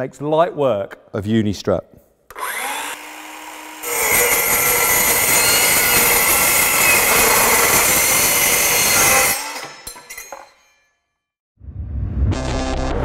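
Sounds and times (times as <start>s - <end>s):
circular saw cutting metal: 2.3s - 10.7s.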